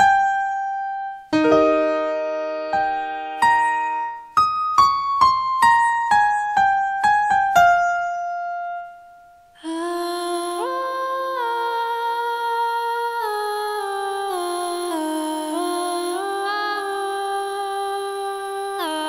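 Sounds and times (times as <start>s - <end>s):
piano single notes: 0.0s - 9.4s
woman singing wordless chords: 9.6s - 19.0s.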